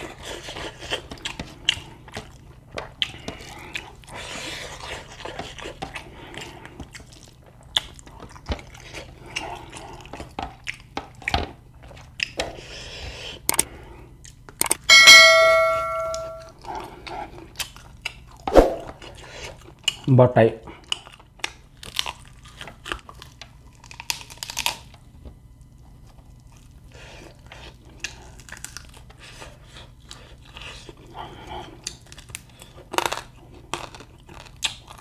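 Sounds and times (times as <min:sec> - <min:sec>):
person chewing: 0:00.0 - 0:14.9, 0:16.4 - 0:20.1, 0:20.8 - 0:25.0, 0:26.0 - 0:35.0
metal tableware ringing: 0:14.9 - 0:16.5.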